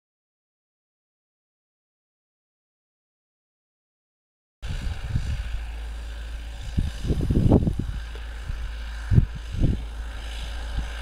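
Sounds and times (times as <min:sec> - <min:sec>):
low buffeting gusts: 0:04.6 - 0:11.0
tractor diesel engine running: 0:04.6 - 0:11.0.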